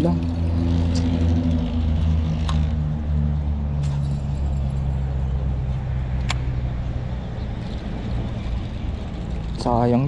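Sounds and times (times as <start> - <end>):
engine humming: 0.0 - 10.0
sharp clicks: 6.2 - 6.5.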